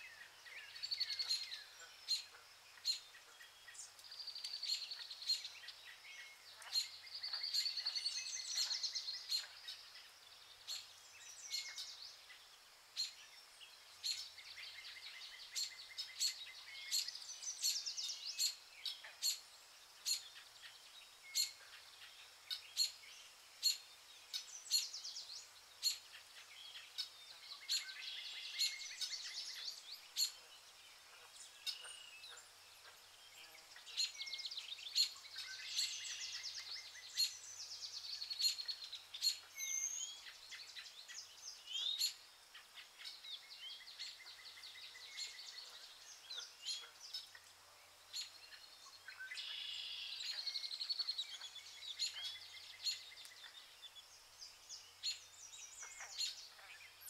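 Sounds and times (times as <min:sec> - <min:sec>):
birds chirping and trilling: 0:00.0 - 0:57.0.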